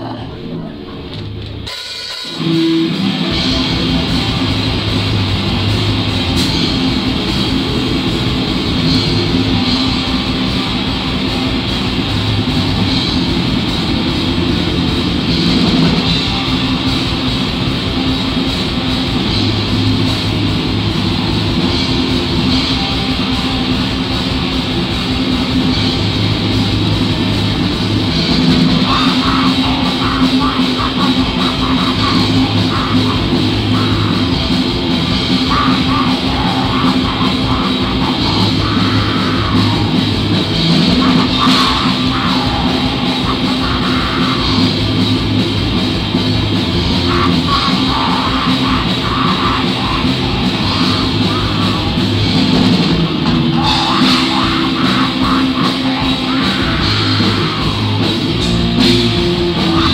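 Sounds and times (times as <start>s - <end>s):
metal band playing live: 0.0s - 59.9s
person singing harshly: 28.1s - 45.4s, 46.7s - 59.9s.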